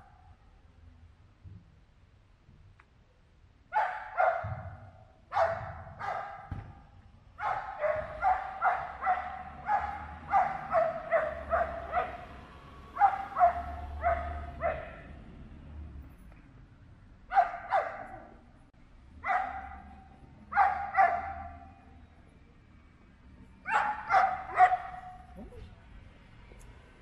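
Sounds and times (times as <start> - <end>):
dog barking: 3.7 - 6.5, 7.4 - 12.4, 13.0 - 15.2, 17.3 - 18.4, 19.2 - 21.7, 23.7 - 25.6.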